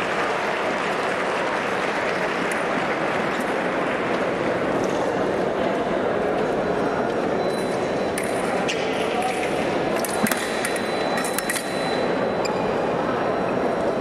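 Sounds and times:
murmur of voices in hall: 0:00.0 - 0:14.0
fencing foils clinking: 0:09.2 - 0:12.1.

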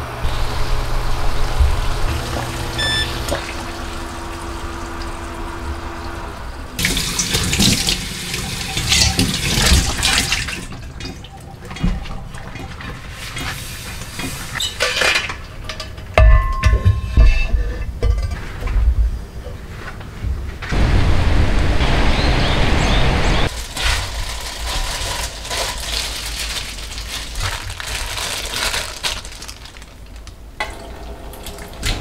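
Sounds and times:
short electronic beeps: 0:02.8 - 0:03.1
faucet water splashing in sink: 0:06.8 - 0:14.6
pan knocking into dish rack: 0:16.2 - 0:17.5.

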